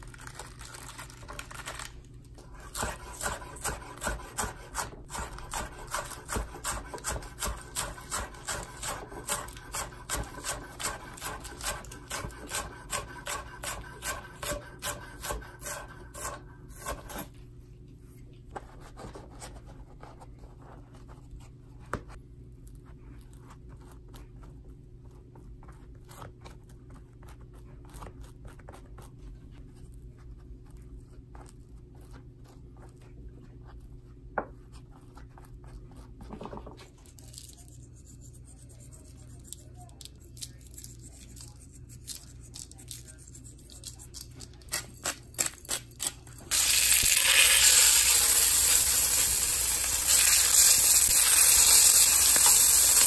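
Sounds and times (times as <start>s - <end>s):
knife slicing lettuce on board: 2.5s - 17.4s.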